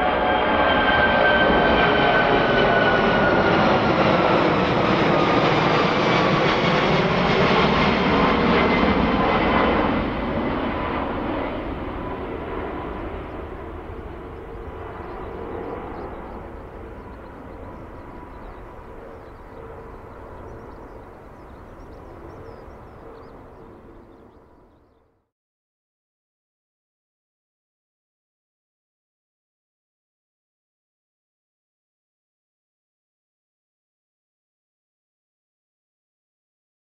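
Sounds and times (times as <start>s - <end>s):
jet airliner roar passing overhead: 0.0s - 25.0s.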